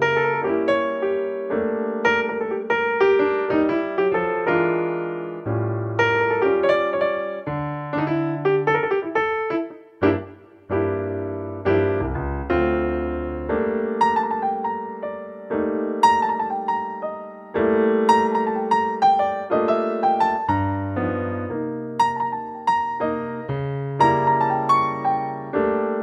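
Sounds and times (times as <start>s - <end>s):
solo piano music: 0.0s - 26.0s.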